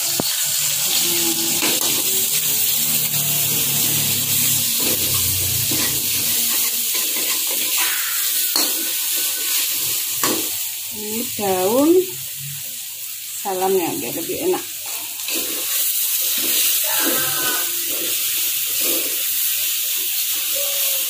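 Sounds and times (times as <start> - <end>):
paste sizzling in hot oil: 0.0 - 21.0
metal spatula scraping a wok: 0.2 - 10.6, 14.8 - 20.3.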